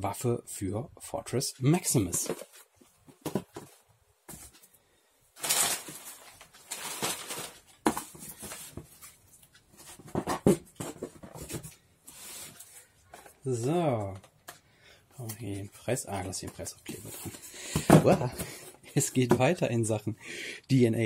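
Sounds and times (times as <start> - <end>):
packaging rustling: 5.4 - 13.3.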